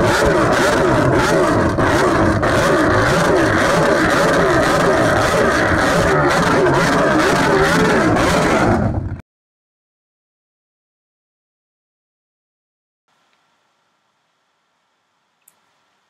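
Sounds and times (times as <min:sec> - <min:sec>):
engine revving: 0:00.0 - 0:09.1.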